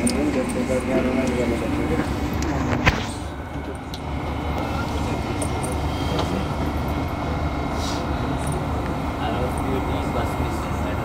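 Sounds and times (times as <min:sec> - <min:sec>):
faint high whine: 0:00.0 - 0:11.0
train wheels rumbling on rail: 0:00.0 - 0:11.0.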